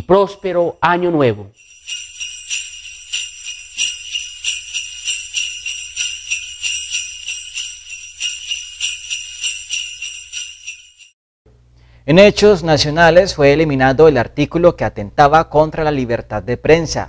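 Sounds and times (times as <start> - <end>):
sleigh bells jingling: 0.0 - 11.2.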